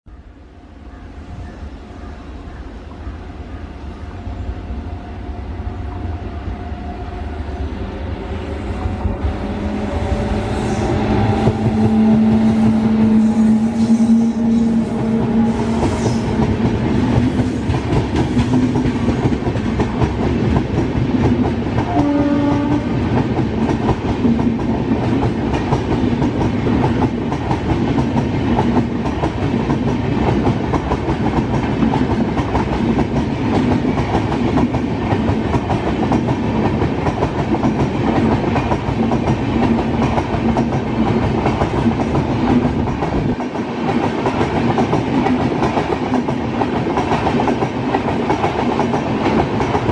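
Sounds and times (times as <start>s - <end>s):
electric locomotive humming: 0.4s - 49.9s
train horn blast: 4.9s - 16.7s, 21.8s - 23.0s
train wheels rumbling and clacking: 5.2s - 49.9s.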